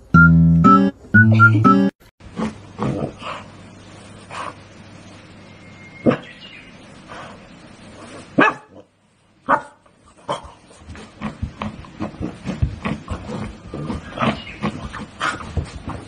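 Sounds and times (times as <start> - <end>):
dog barking: 8.4 - 8.9, 9.5 - 10.5
dog scuffling: 10.1 - 16.0.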